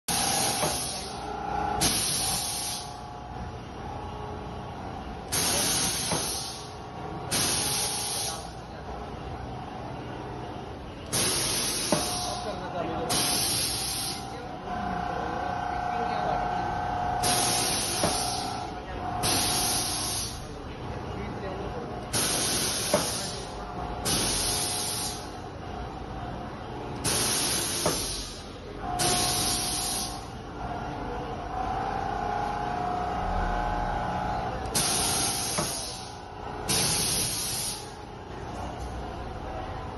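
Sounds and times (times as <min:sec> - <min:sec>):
compressed air hissing bursts: 0:00.1 - 0:01.2, 0:01.8 - 0:03.0, 0:05.3 - 0:06.7, 0:07.3 - 0:08.5, 0:11.1 - 0:12.4, 0:13.1 - 0:14.3, 0:17.2 - 0:18.5, 0:19.2 - 0:20.4, 0:22.1 - 0:25.3, 0:27.0 - 0:28.4, 0:29.0 - 0:30.3, 0:34.8 - 0:36.1, 0:36.7 - 0:38.0.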